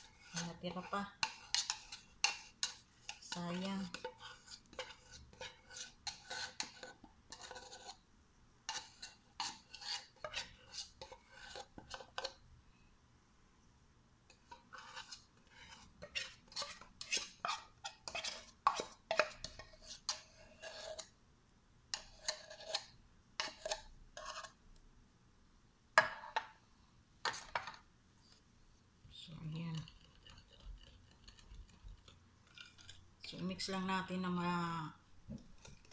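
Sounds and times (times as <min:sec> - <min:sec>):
utensil scraping metal can: 0:00.0 - 0:08.0, 0:14.7 - 0:21.1.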